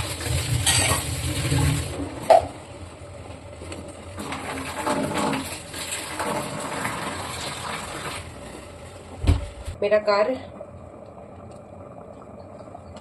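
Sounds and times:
curry bubbling: 0.0s - 13.0s.

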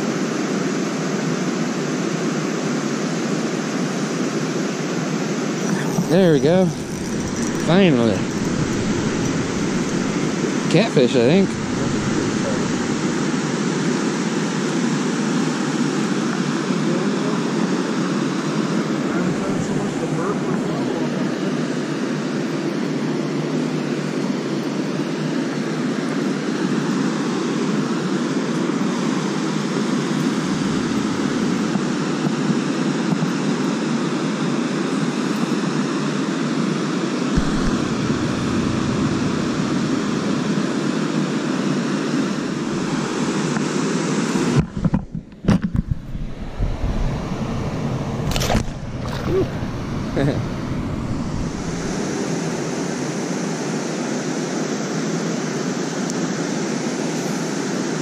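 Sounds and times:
water rushing through spillway: 5.7s - 14.2s, 37.4s - 43.6s, 48.1s - 53.1s
water splash: 37.4s - 40.8s, 48.2s - 49.8s.

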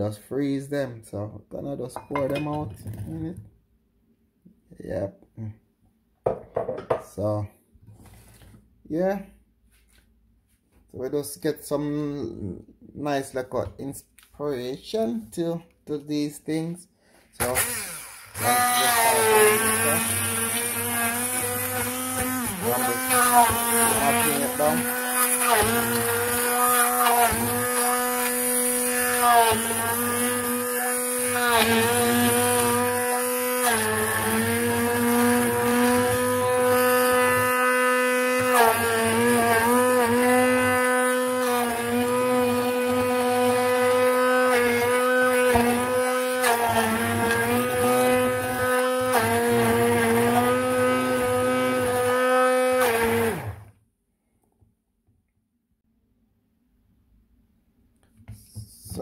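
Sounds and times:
hand blender motor whining: 17.4s - 53.7s.

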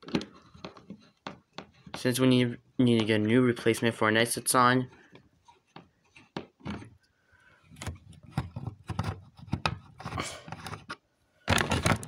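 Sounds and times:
plastic housing clicks and knocks: 7.8s - 12.0s.

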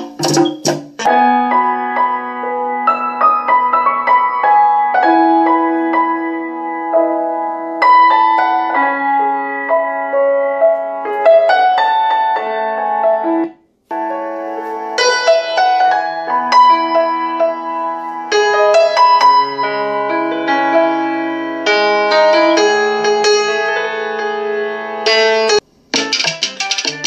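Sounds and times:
percussive hits: 0.0s - 1.1s
instrumental music through speakers: 0.0s - 27.0s
keyboard-like melody: 0.0s - 27.0s.

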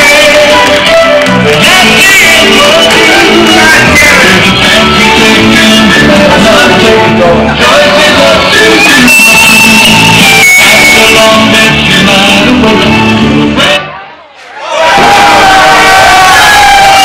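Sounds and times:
electric guitar: 0.0s - 13.8s
live band playing: 0.0s - 13.8s
person singing: 0.0s - 14.0s.

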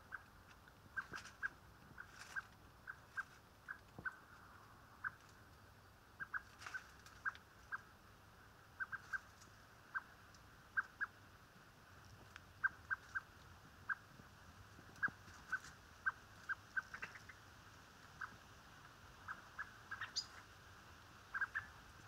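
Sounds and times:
blackbird calling: 0.0s - 0.3s, 0.9s - 5.4s, 6.2s - 8.0s, 8.7s - 11.2s, 12.6s - 14.1s, 15.0s - 17.4s, 18.1s - 18.4s, 19.1s - 20.6s, 21.2s - 22.0s.

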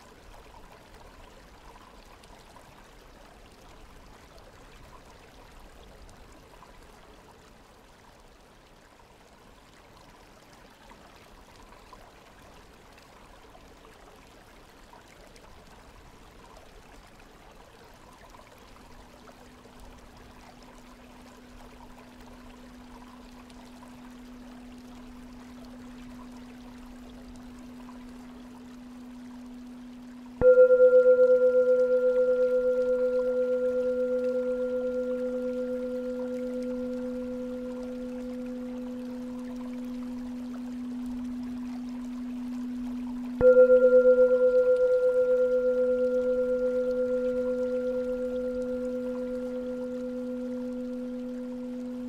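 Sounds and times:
flowing water: 0.0s - 52.0s
singing bowl tone: 19.5s - 52.0s.

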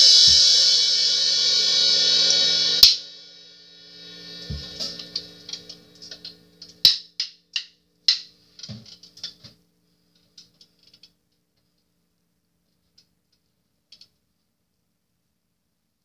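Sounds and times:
cymbal taps with sticks: 2.3s - 3.1s, 4.4s - 8.4s
low drum hit: 4.2s - 5.2s.

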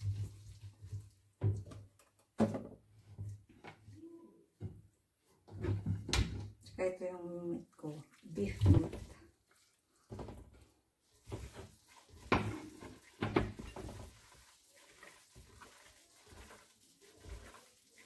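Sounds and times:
meat being kneaded by hand: 8.4s - 18.0s
meat pushed with spatula: 11.1s - 18.0s.

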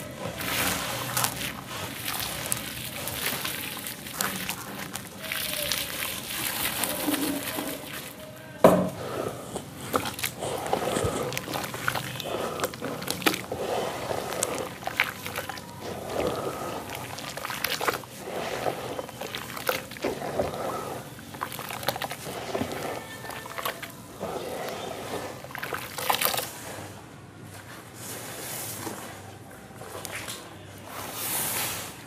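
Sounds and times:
hands sloshing wet sand in water: 0.3s - 8.3s, 9.8s - 26.7s.

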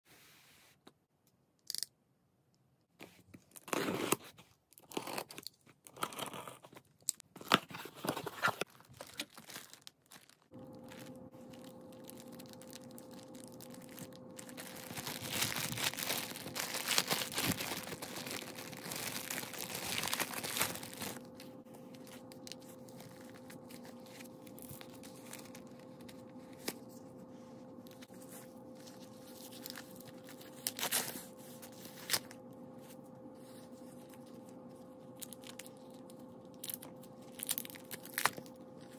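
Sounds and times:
plastic wrapper crinkling: 8.0s - 27.1s, 27.8s - 32.4s, 33.8s - 38.9s.

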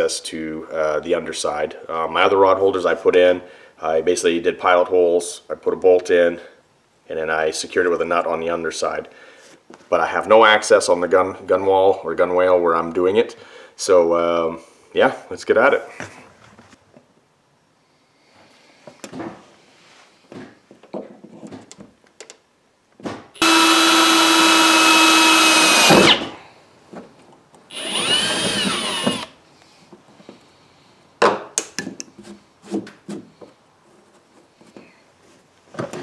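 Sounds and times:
cordless drill drilling metal: 23.4s - 26.3s, 27.7s - 29.4s.

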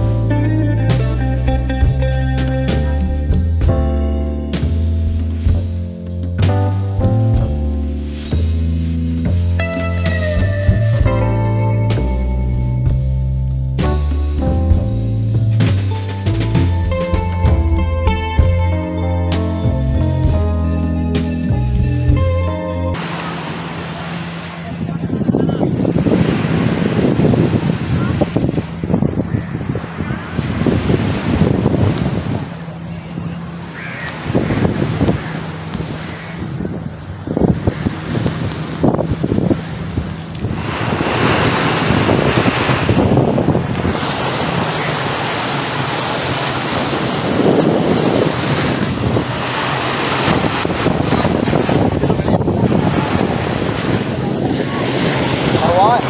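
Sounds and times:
small waves washing on beach: 7.8s - 9.7s, 23.0s - 56.0s
wind buffeting microphone: 22.9s - 56.0s.

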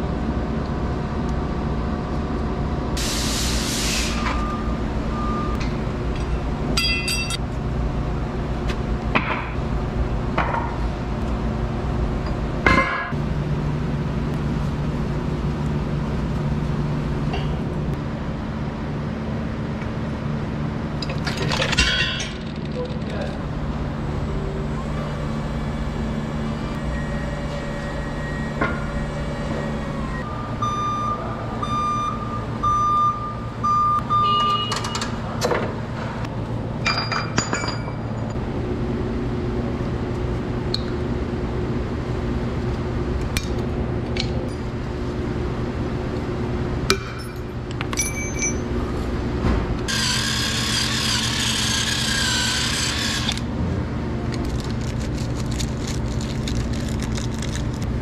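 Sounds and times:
forklift engine humming: 0.0s - 21.3s, 22.1s - 36.8s, 38.0s - 58.0s
high electronic beeps: 26.9s - 34.9s
metal clinks: 47.1s - 48.7s
rotary power tool on steel: 49.9s - 53.5s.

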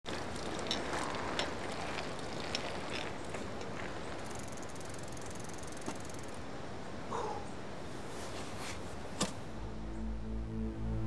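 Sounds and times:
bicycle rolling on pavement: 0.0s - 5.9s.

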